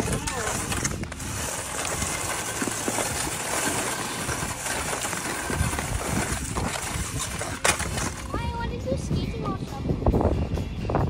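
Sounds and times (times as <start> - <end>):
ice skates sliding on ice: 0.0 - 8.4
chair legs scraping on ice: 0.0 - 8.5
wind on microphone: 0.0 - 11.0.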